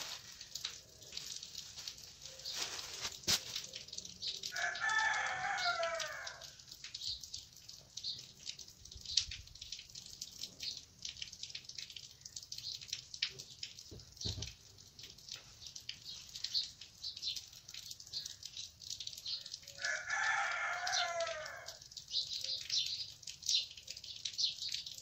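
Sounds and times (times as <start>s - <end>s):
rooster crowing: 4.5s - 6.5s, 19.8s - 21.8s.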